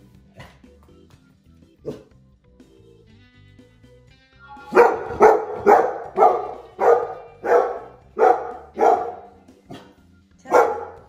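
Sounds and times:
faint background music: 0.0s - 11.0s
dog barking loudly: 4.7s - 11.0s.

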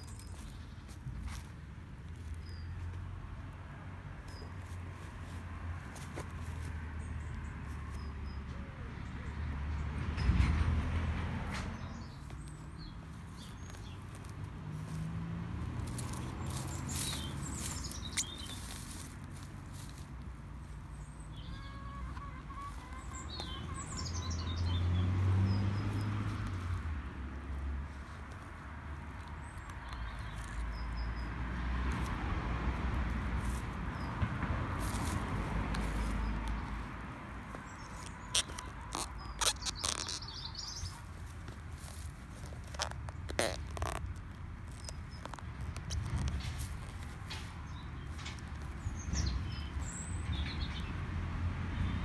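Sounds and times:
shoes rustling on dry grass: 0.0s - 8.6s, 11.5s - 50.8s
birds chirping: 11.8s - 15.1s, 15.8s - 27.0s, 28.2s - 31.5s, 33.9s - 51.0s
bird chirping: 16.4s - 19.0s, 20.9s - 26.1s, 37.5s - 41.1s.

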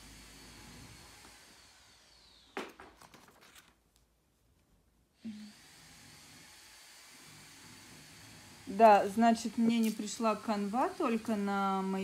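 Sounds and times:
plastic packaging crinkling: 2.7s - 4.0s.

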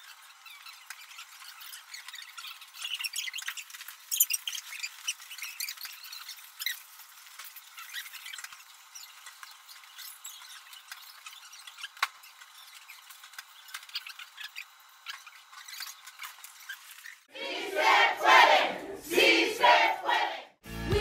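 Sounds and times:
people cheering and shouting: 17.3s - 20.5s.

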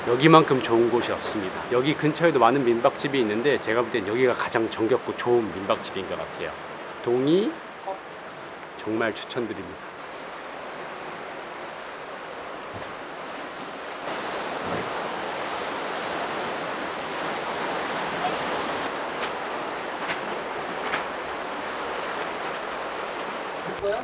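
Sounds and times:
waves washing over rocks: 9.6s - 24.0s.

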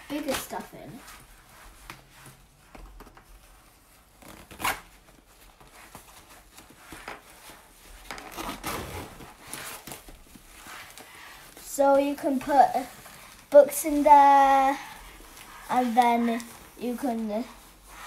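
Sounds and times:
fabric rustling: 0.0s - 18.0s
zipper being drawn: 4.1s - 4.9s.

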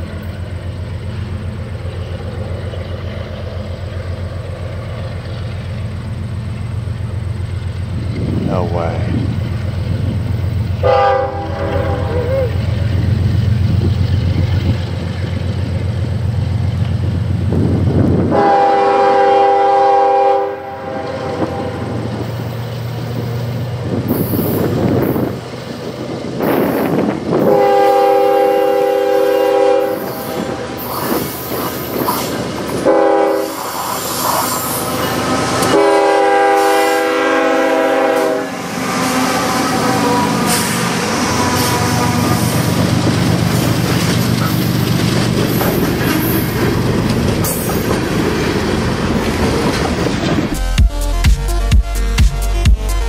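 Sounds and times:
diesel locomotive droning: 0.0s - 53.0s
train air horn: 10.8s - 12.6s, 18.3s - 22.0s, 27.4s - 30.9s, 32.8s - 33.8s, 35.6s - 42.7s
train wheels clattering on rails: 29.8s - 36.8s, 39.7s - 50.6s.

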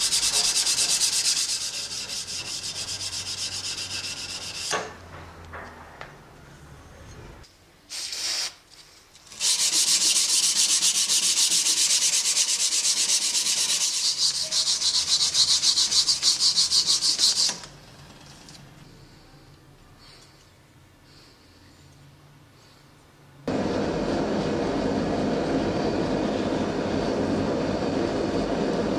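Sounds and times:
sanding block rubbing steel: 0.0s - 4.8s, 9.3s - 17.6s.

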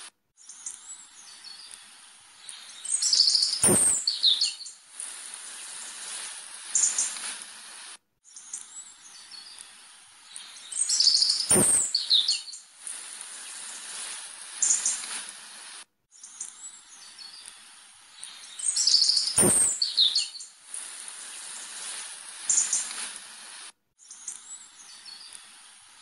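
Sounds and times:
steady hiss: 0.0s - 26.0s
birds chirping: 0.4s - 7.2s, 8.3s - 15.2s, 16.1s - 23.0s
sharp click: 3.5s - 4.2s, 11.4s - 12.1s, 19.2s - 19.9s.

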